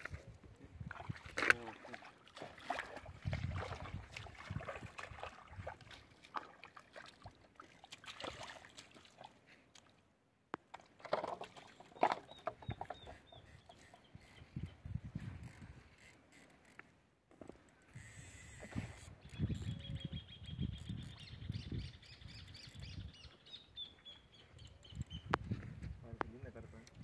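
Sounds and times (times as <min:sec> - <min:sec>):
water sloshing and splashing: 0:00.8 - 0:10.0, 0:10.7 - 0:14.0.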